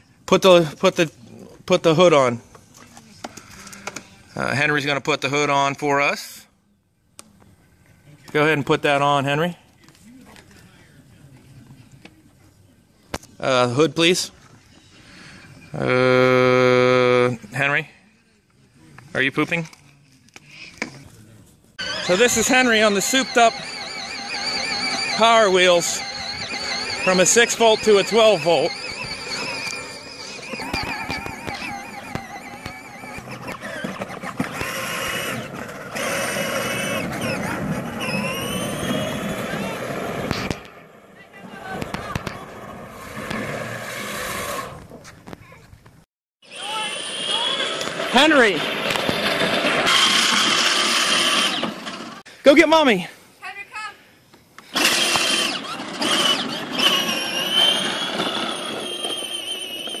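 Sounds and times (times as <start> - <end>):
toy tractor motor whine: 21.8 - 40.6, 46.4 - 52.2, 54.7 - 60.0
plastic wheels grinding on asphalt: 21.8 - 45.1, 46.5 - 52.2, 54.7 - 60.0.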